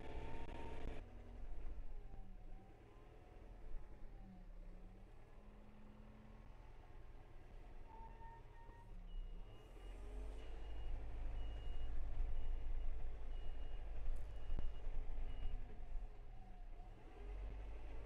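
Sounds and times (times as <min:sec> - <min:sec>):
tractor diesel engine running: 0:00.0 - 0:02.3, 0:09.7 - 0:18.0.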